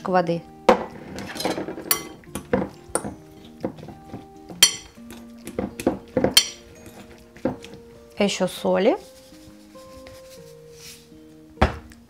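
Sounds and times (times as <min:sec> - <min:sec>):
light instrumental music: 0:00.0 - 0:12.0
clinks against glass bowl: 0:01.4 - 0:03.1, 0:04.6 - 0:05.0, 0:06.2 - 0:07.0.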